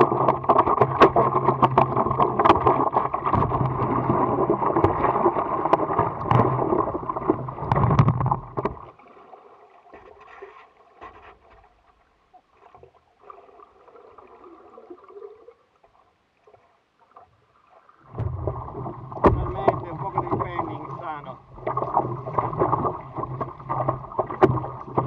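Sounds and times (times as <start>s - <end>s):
muffled underwater gurgling: 0.0s - 8.9s, 18.0s - 25.0s
water splashing and sloshing: 0.0s - 25.0s.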